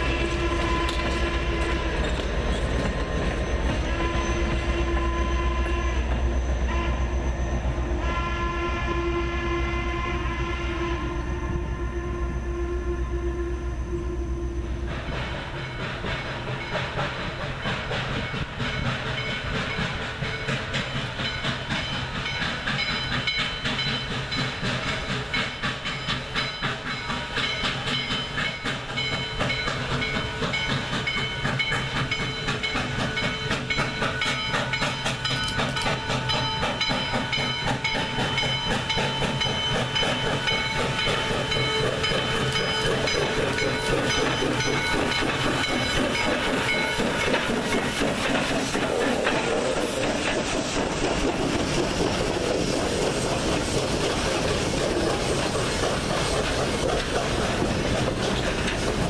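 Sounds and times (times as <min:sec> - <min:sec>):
steam locomotive exhaust chuffs: 0:00.0 - 0:59.0
hissing steam: 0:14.6 - 0:59.0.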